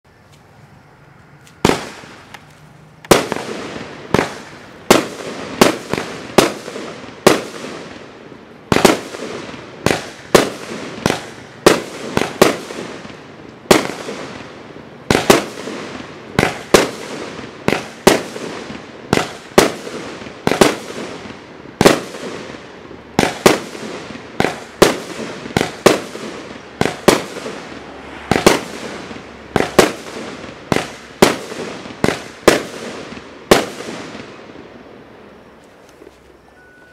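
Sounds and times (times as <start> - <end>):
fireworks bangs: 1.6 - 36.1.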